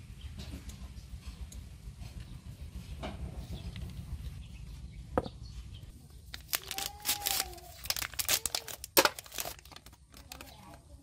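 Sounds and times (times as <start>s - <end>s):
foil packet crinkling: 6.2s - 10.8s.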